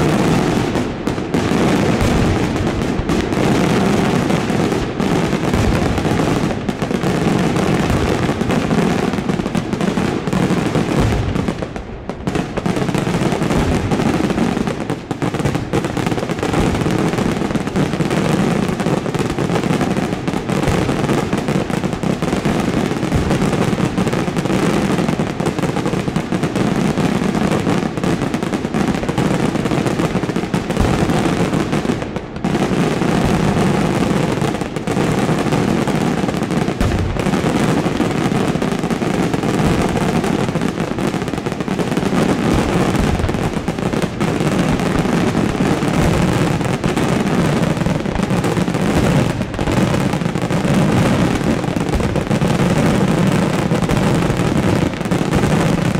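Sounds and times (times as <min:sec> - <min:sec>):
fireworks bangs and crackling: 0:00.0 - 0:55.9.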